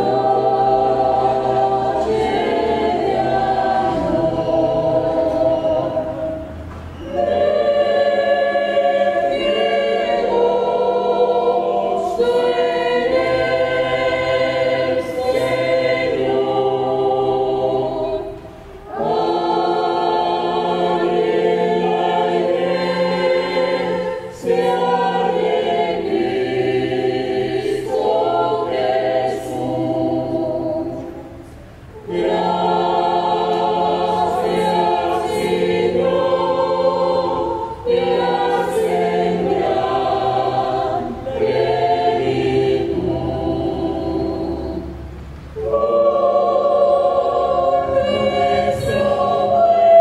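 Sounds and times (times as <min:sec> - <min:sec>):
mixed choir singing a carol: 0:00.0 - 0:50.0.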